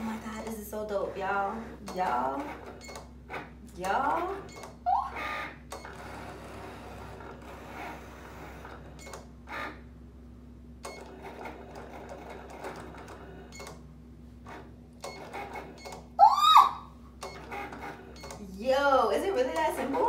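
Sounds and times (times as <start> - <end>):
cutting machine motors whirring: 17.2 - 20.0.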